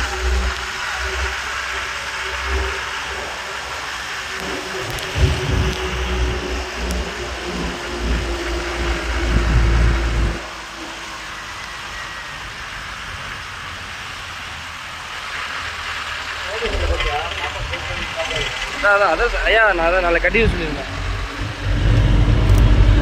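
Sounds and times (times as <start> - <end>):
road and wind noise from car: 0.0 - 23.0
wind buffeting on microphone: 4.4 - 10.5, 20.2 - 23.0.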